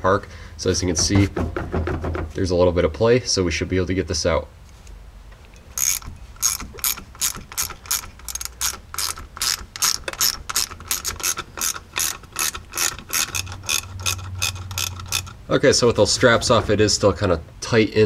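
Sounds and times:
socket ratchet clicking: 0:05.5 - 0:15.4.

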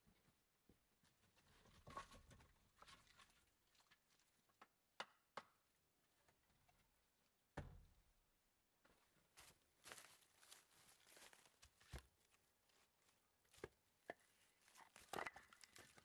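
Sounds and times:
footsteps on dry leaves: 0:09.4 - 0:13.2.

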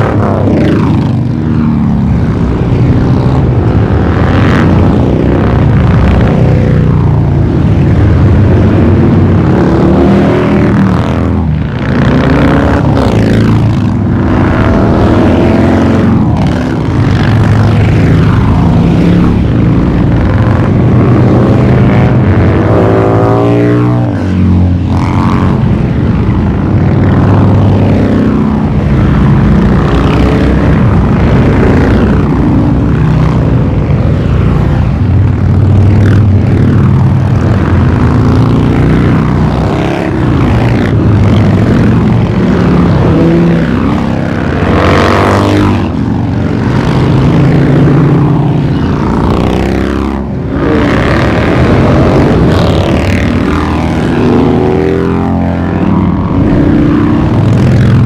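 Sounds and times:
motorcycles riding past: 0:00.0 - 0:58.0.

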